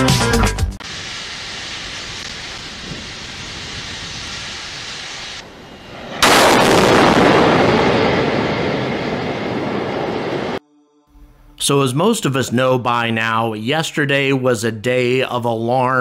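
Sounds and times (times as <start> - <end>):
steady hiss: 0.8 - 5.5
rocket booster explosion: 0.8 - 10.6
low rumbling: 1.4 - 10.6.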